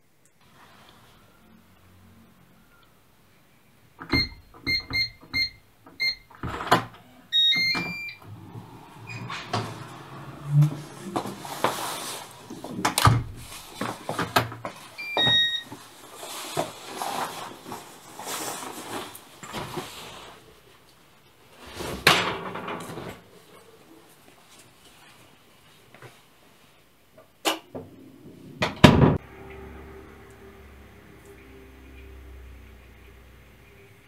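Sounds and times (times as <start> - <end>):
keypad beeping: 4.1 - 6.2, 7.3 - 8.2, 15.0 - 15.7
door opening: 6.4 - 11.5.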